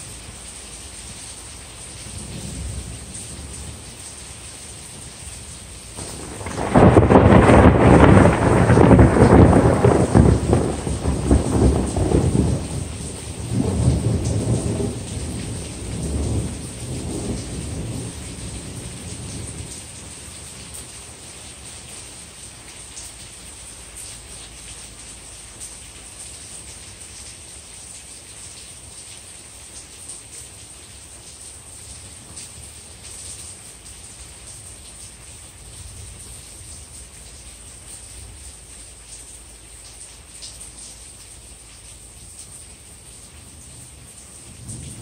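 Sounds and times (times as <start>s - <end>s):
steady rain: 0.0s - 45.0s
thunder rolling: 6.0s - 18.2s.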